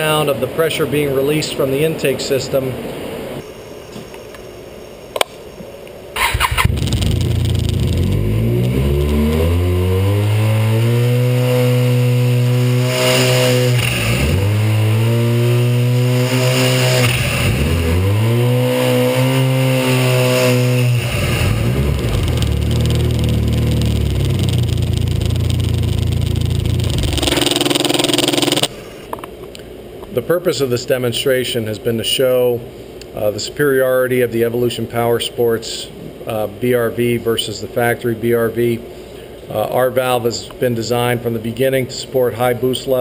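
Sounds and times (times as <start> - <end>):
snowmobile engine revving: 6.2 - 28.7.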